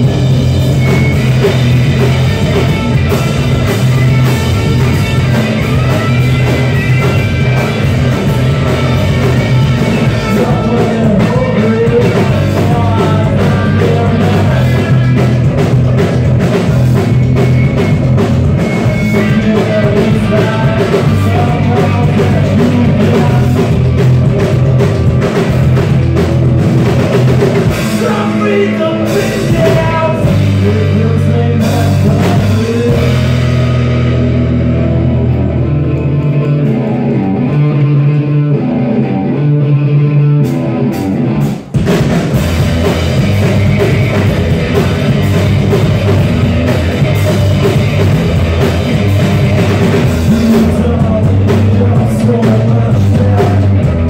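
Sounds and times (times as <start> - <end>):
rock band playing live: 0.0 - 54.0.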